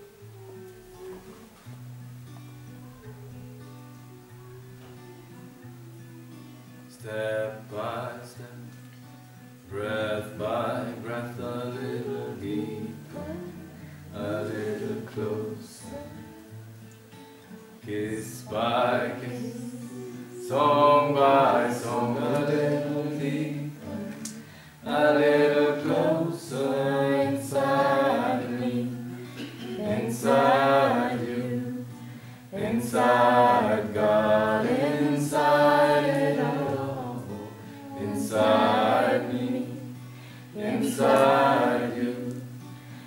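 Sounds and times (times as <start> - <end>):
acoustic guitar strumming: 0.0 - 43.0
man singing: 6.9 - 8.7, 9.7 - 16.5, 17.8 - 29.0
group of voices singing along: 9.7 - 16.5, 17.8 - 43.0.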